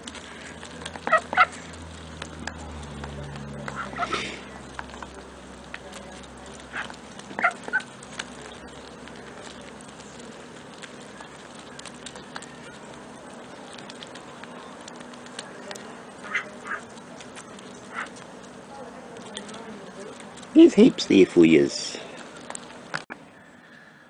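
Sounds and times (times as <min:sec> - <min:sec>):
bills tapping on asphalt: 0:00.0 - 0:23.2
ducks quacking: 0:01.0 - 0:01.7, 0:03.6 - 0:04.5, 0:06.7 - 0:08.0, 0:16.2 - 0:16.9, 0:17.9 - 0:18.2.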